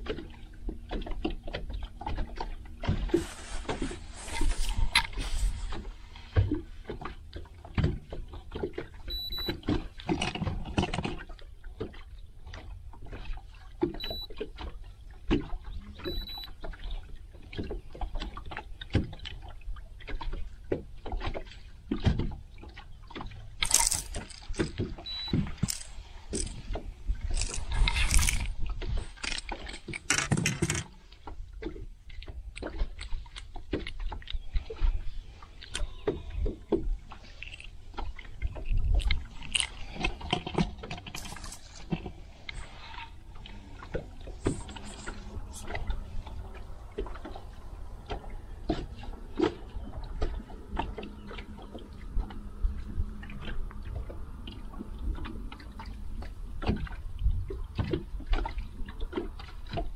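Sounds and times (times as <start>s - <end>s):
knocks and handling on boat: 0.0s - 27.8s, 28.4s - 59.9s
water splashing: 0.0s - 30.1s, 30.9s - 59.9s
short high beeps: 9.1s - 9.5s, 14.0s - 14.3s, 16.1s - 16.5s, 25.1s - 25.4s.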